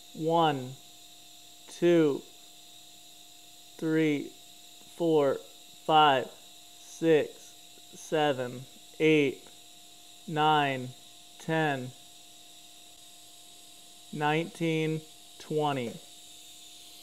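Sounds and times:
welding arc humming: 0.0 - 17.0
man counting aloud: 0.2 - 0.8, 1.7 - 2.2, 3.8 - 4.3, 5.0 - 7.4, 8.0 - 9.5, 10.3 - 11.9, 14.2 - 16.0.

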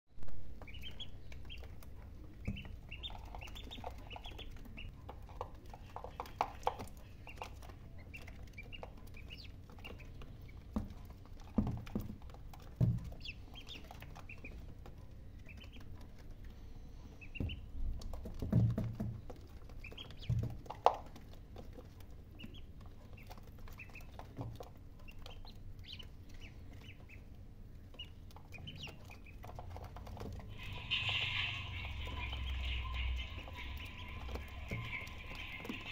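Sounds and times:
ducklings peeping: 0.4 - 35.9
thumps and taps: 10.7 - 14.6, 17.4 - 21.2.

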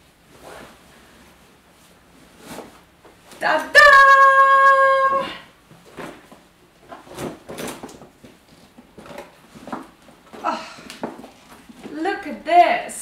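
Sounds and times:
bag rustling and knocking: 5.7 - 12.0.

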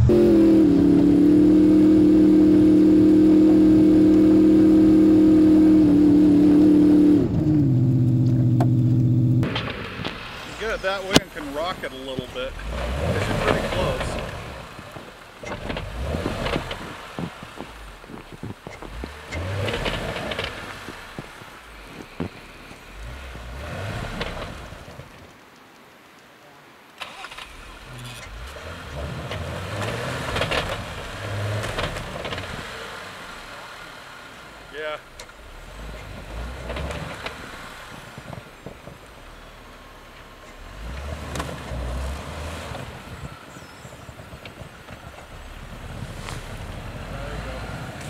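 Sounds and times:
engine revving: 0.0 - 25.0, 27.0 - 38.4, 40.4 - 44.0
tires spinning in snow: 0.0 - 25.4, 27.0 - 48.0.

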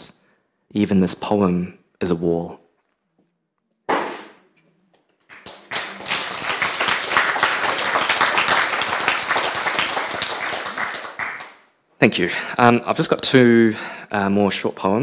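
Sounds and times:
audience applauding: 5.2 - 11.6.

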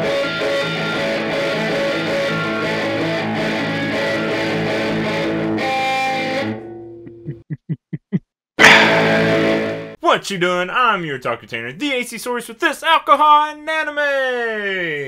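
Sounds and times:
guitar-led theme music: 0.0 - 7.4, 8.6 - 10.0.

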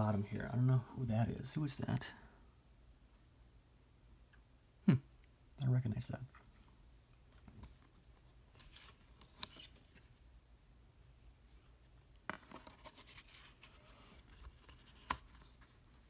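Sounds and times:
cardboard rustling and scraping: 12.4 - 16.0.

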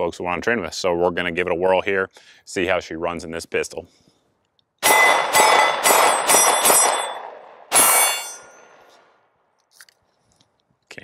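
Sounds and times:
pistol shots ringing: 4.8 - 8.9.

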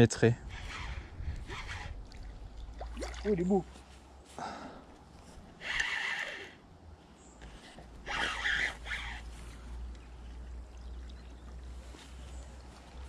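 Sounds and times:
fish thrashing and splashing: 1.9 - 3.4.

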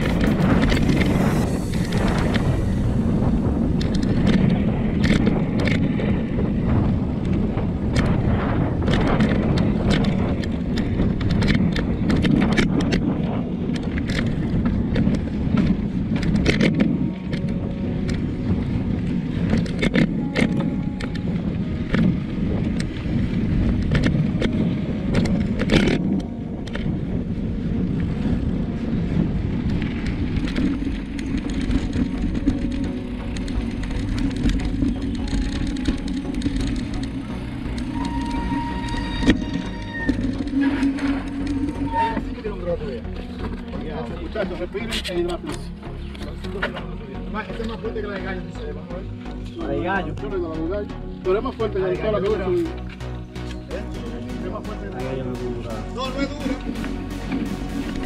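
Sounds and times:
bike tyres rumbling on gravel: 0.0 - 44.6
bike clicking and rattling: 0.0 - 49.6, 50.2 - 58.0.

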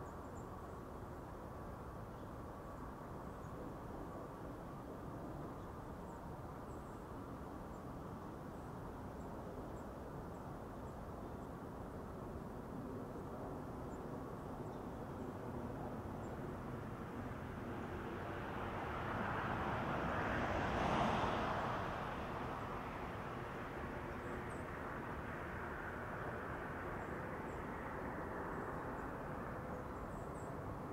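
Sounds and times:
vehicle passing: 18.2 - 24.0.

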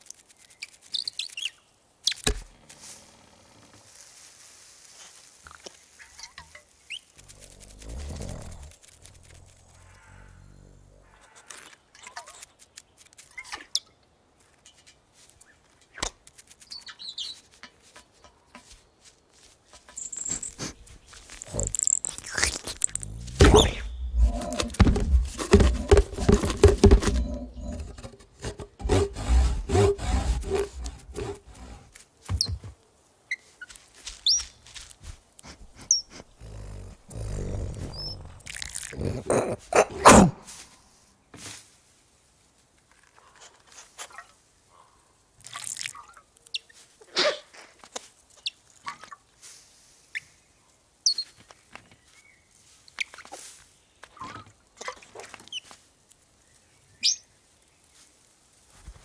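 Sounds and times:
rustles and clicks: 0.0 - 10.0, 11.3 - 13.7, 14.4 - 32.8
small bird chirping: 0.4 - 2.3, 5.9 - 7.9, 15.4 - 17.5, 19.9 - 24.2, 51.0 - 52.4, 56.5 - 57.4
fox snuffling and growling: 7.1 - 11.4, 20.3 - 32.0, 35.4 - 40.6.

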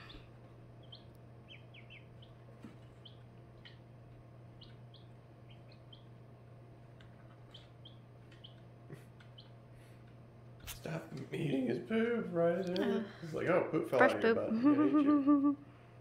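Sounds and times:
chicks peeping: 0.0 - 10.2
steady low hum: 0.0 - 16.0.

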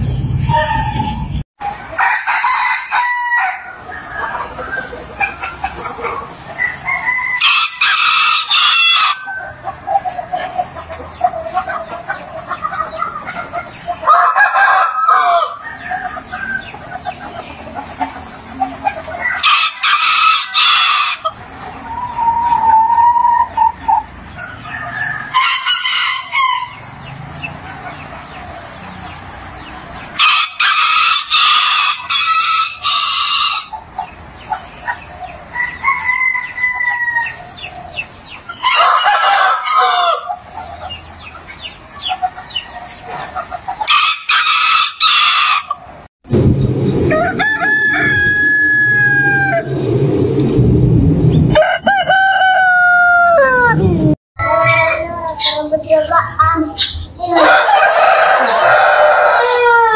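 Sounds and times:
loud low rumble: 0.0 - 1.4, 46.3 - 51.6
roosters crowing: 0.3 - 59.9.

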